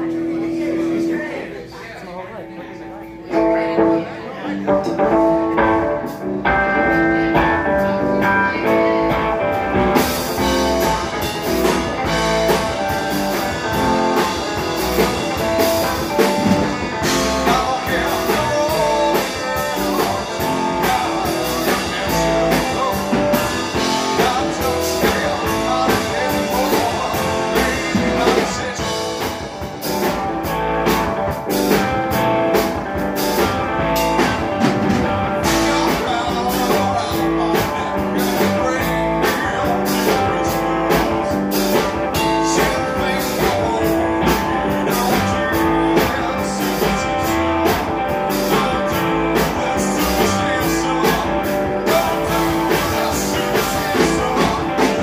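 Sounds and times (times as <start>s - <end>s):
electric guitar: 2.9s - 55.0s
man singing: 3.3s - 55.0s
drum kit: 4.7s - 55.0s.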